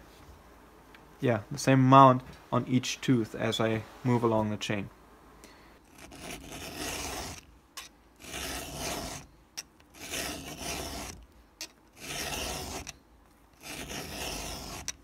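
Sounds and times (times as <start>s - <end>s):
file rasping on chain tooth: 5.9s - 15.0s.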